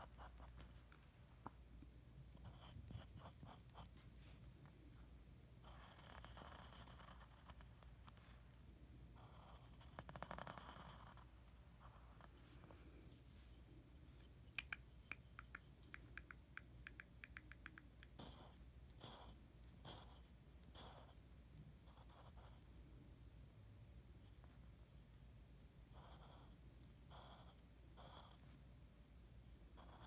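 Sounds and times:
pencil scratching on paper: 0.0 - 0.8, 2.4 - 4.5, 5.6 - 8.4, 9.2 - 13.5, 18.1 - 21.2, 21.9 - 22.7, 25.9 - 28.6
light ticks: 14.5 - 18.2.

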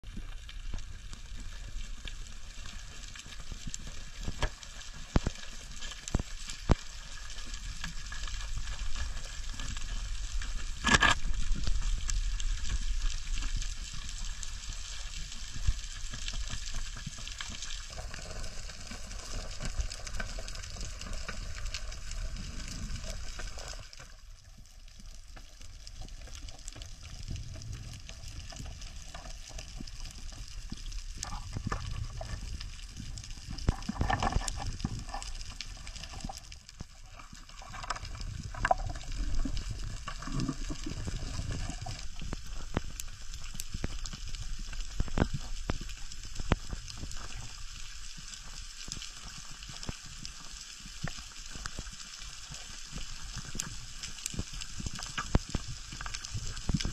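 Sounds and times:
reef crackle: 0.0 - 56.9
sharp underwater clicks and knocks: 7.7 - 14.2, 26.0 - 47.5, 51.0 - 56.9.

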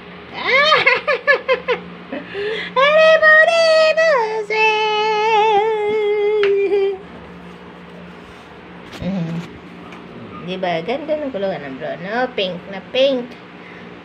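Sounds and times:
puppy howling: 9.0 - 10.6.

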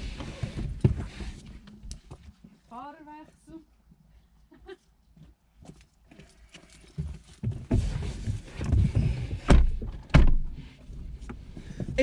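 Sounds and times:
rustling and bumping in car: 0.0 - 2.5, 6.9 - 12.0.

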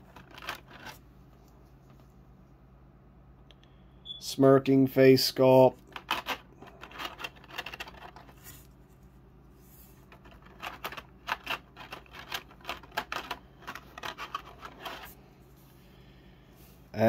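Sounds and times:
plastic parts clicking and knocking: 0.0 - 1.0, 5.9 - 8.4, 10.1 - 15.1.

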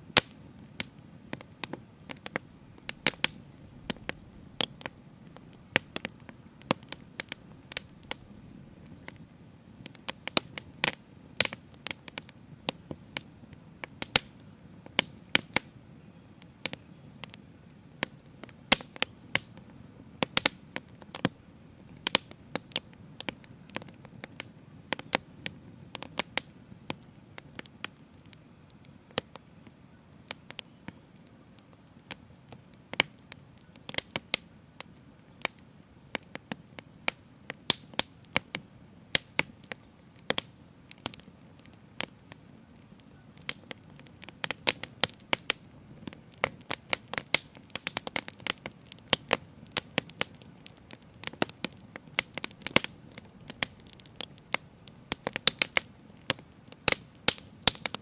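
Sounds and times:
fire crackling and popping: 0.0 - 58.0
low rush of flame: 0.2 - 15.8.

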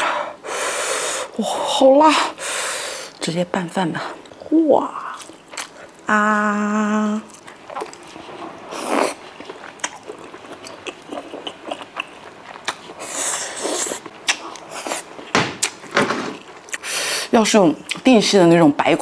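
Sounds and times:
hissing breaths: 0.0 - 1.4, 2.2 - 3.2, 16.8 - 17.4
person chewing food: 5.1 - 6.0, 7.3 - 17.0
wet mouth clicks and smacks: 14.2 - 14.4.

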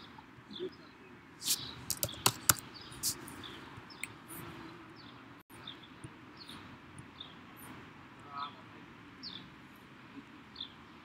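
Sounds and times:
sharp mouse clicks: 1.4 - 3.2.

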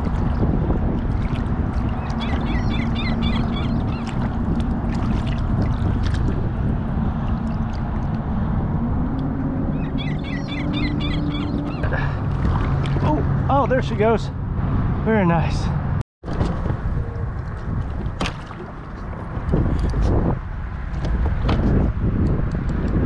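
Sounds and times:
water sloshing against kayak hull: 0.0 - 8.2, 9.8 - 13.3, 16.2 - 20.3
high chirps: 2.0 - 4.1, 9.7 - 11.9.

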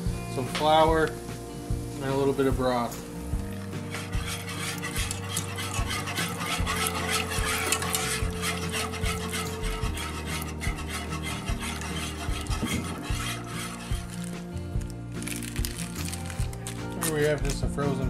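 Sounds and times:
wire whisk scraping a pan: 3.7 - 14.5.

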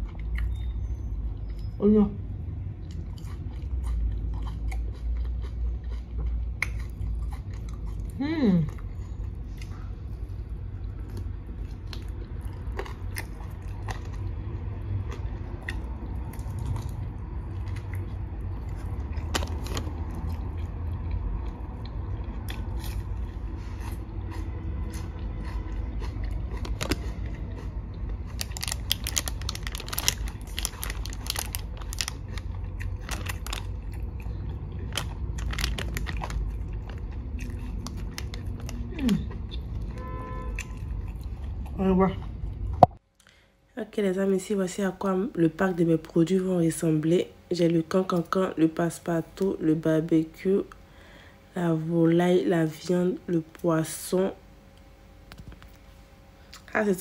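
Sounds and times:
steady low rumble: 1.0 - 43.2
biting and chewing: 2.7 - 42.9.

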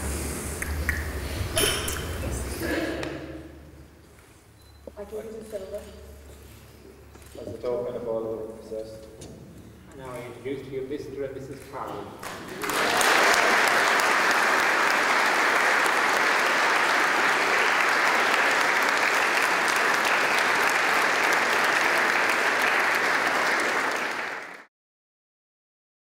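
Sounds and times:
crowd applauding: 12.2 - 24.7.

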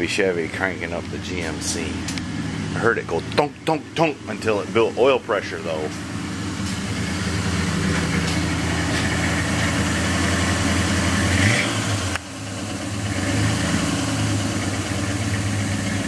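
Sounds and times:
pickup truck engine idling: 0.0 - 16.0.

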